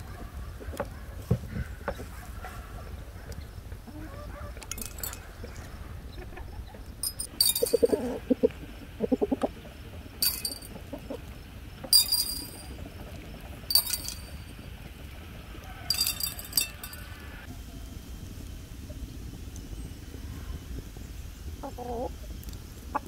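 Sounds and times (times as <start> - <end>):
chicken clucking: 3.9 - 4.6, 7.6 - 12.0, 21.6 - 22.1
peppercorns clinking on glass: 4.6 - 5.3, 7.0 - 8.4, 10.2 - 10.8, 11.8 - 12.8, 13.7 - 14.7, 15.9 - 17.4.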